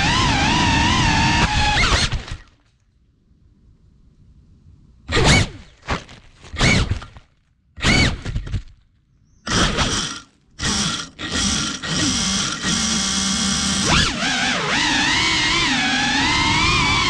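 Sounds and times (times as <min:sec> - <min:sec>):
drone motors whining: 0:00.0 - 0:02.4, 0:09.5 - 0:17.0.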